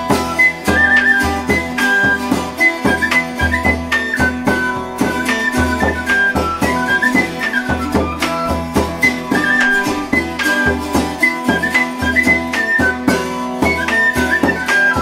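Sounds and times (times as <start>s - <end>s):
high woodwind melody: 0.0s - 15.0s
plucked strings: 0.0s - 15.0s.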